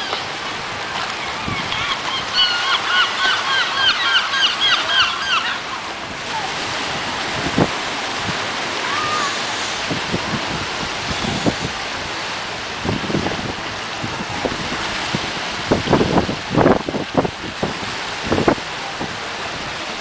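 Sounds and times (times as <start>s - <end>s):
wind on microphone: 0.0s - 3.1s, 5.4s - 20.0s
small waves washing onto beach: 0.0s - 20.0s
gull calling: 0.9s - 6.5s, 8.8s - 9.6s.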